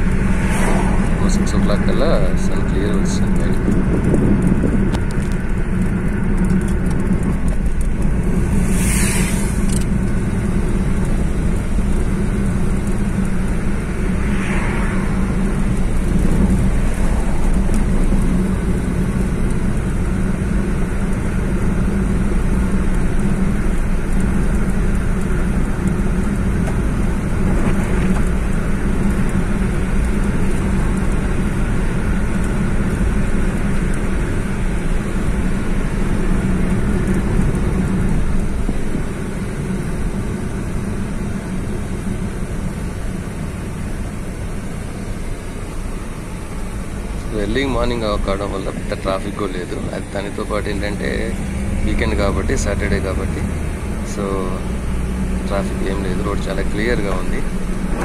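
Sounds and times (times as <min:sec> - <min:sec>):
car cabin engine and tyre noise: 0:00.0 - 0:58.0
short hissing swells: 0:08.4 - 0:09.8.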